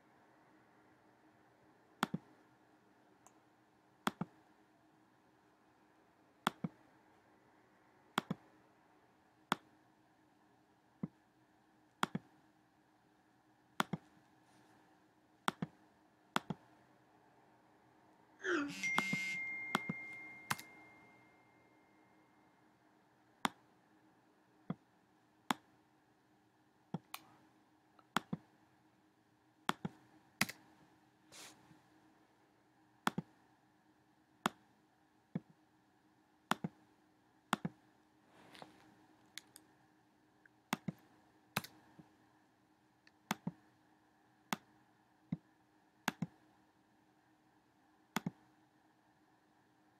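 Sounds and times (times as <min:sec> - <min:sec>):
faint steady hum: 0:00.0 - 0:49.9
computer mouse clicks: 0:02.0 - 0:02.3, 0:06.4 - 0:06.8, 0:08.2 - 0:08.4, 0:12.0 - 0:12.3, 0:13.8 - 0:14.1, 0:15.4 - 0:16.7, 0:29.7 - 0:30.7, 0:33.0 - 0:33.3, 0:36.5 - 0:36.8, 0:37.5 - 0:37.8, 0:40.7 - 0:41.0, 0:43.1 - 0:43.6, 0:44.5 - 0:46.4, 0:48.1 - 0:48.4
ringing tone: 0:18.6 - 0:22.4.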